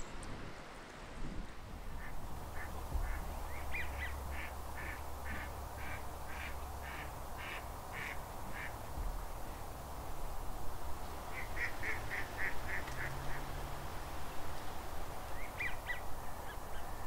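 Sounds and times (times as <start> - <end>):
duck quacking: 11.4 - 13.4.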